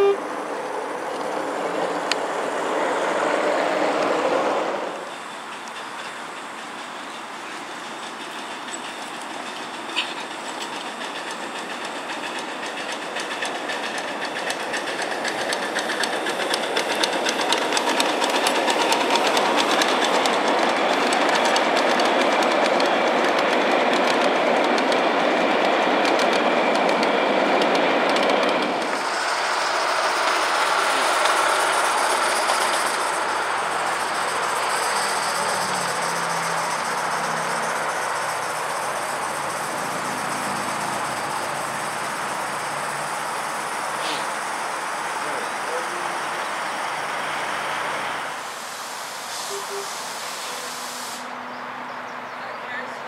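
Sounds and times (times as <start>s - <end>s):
miniature train rolling past: 0.0s - 53.0s
wheels clicking over rail joints: 5.0s - 44.5s.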